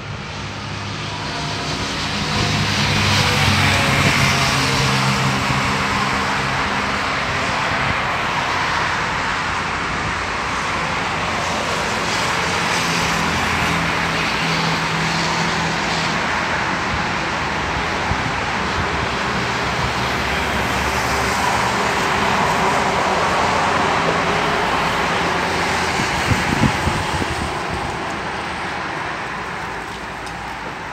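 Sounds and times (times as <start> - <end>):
road traffic noise: 0.0 - 30.9.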